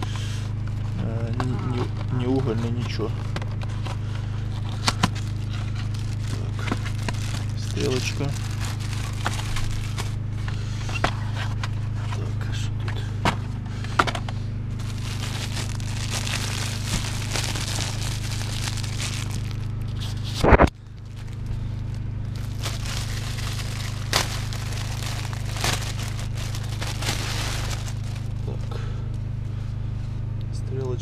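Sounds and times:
steady low hum: 0.0s - 31.0s
plastic wrapping crinkling: 2.1s - 10.2s, 14.8s - 28.5s.

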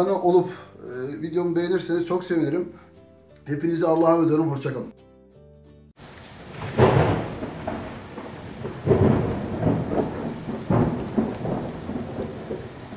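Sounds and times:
steady rain: 6.0s - 12.9s
thunder rumbles: 6.0s - 12.9s.

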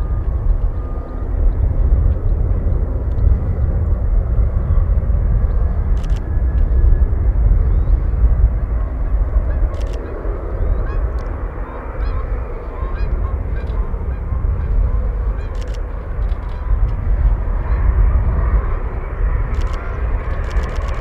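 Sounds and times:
airplane engine rumble: 0.0s - 21.0s.

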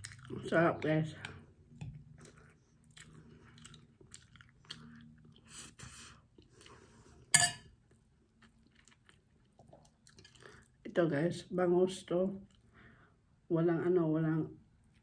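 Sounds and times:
person chewing food: 0.0s - 0.6s, 1.2s - 10.8s.

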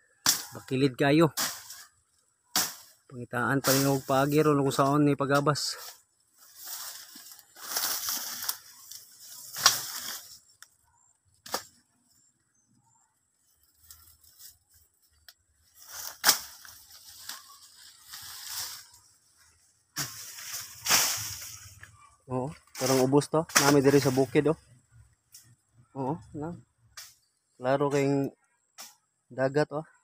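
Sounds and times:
sharp cracks: 0.2s - 0.7s, 9.5s - 10.2s, 11.4s - 11.8s, 15.9s - 17.4s, 22.7s - 24.2s
leaves and brush rustling: 0.3s - 10.8s, 11.4s - 25.7s.

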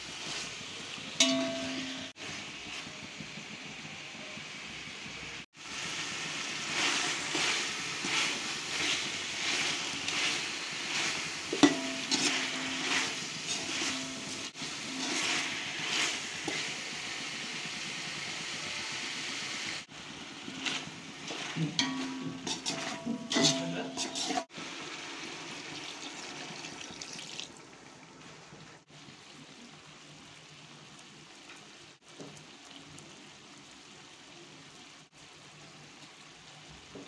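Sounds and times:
chicken sizzling in pot: 0.0s - 37.0s
spoon clinking against pot: 1.2s - 2.1s, 11.5s - 14.5s, 21.8s - 24.4s
metal spoon scraping pot: 7.3s - 16.7s, 20.5s - 24.5s.

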